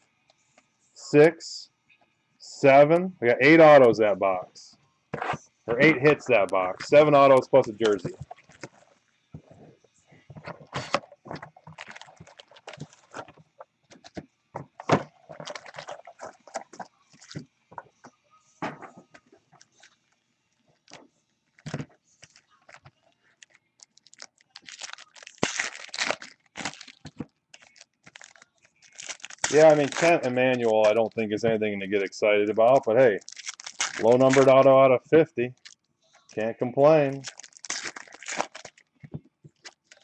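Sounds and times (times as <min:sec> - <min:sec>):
foil crinkling: 0:05.9 - 0:09.5, 0:10.3 - 0:17.4, 0:20.8 - 0:34.8, 0:35.5 - 0:39.0, 0:39.6 - 0:40.0.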